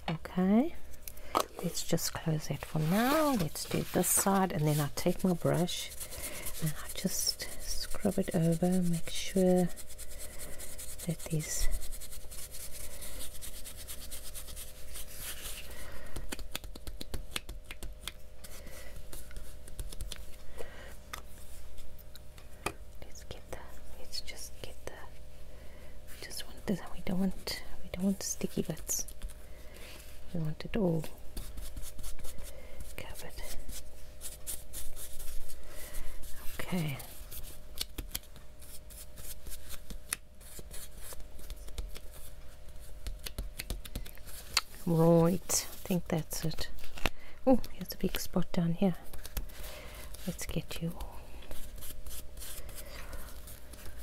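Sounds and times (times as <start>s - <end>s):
brush rustling on paper: 1.8s - 15.8s, 31.3s - 37.6s, 38.3s - 54.0s
brush crackling on leaf and paper: 2.6s - 15.7s.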